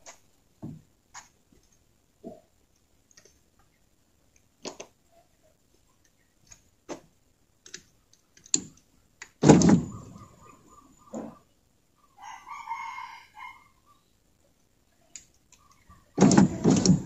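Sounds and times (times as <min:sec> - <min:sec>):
loud clunk: 0:09.4 - 0:10.1, 0:16.2 - 0:17.0
rooster crowing: 0:12.2 - 0:13.9.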